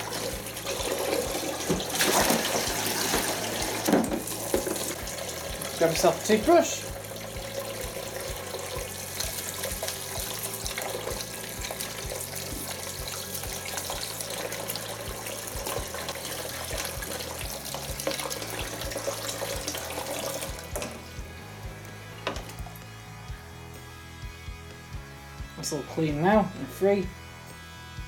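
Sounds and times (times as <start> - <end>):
tap water running into bowl: 0.0 - 21.2, 22.2 - 22.8.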